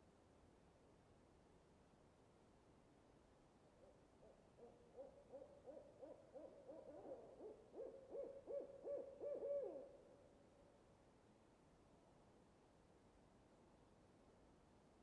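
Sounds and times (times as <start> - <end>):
owl hooting: 4.2 - 10.0.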